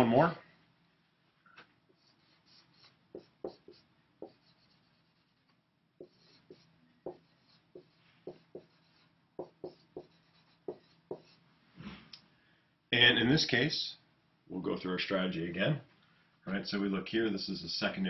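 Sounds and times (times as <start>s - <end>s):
marker scratching on whiteboard: 1.9s - 11.4s
marker tapping on whiteboard: 3.1s - 4.8s, 6.0s - 11.4s.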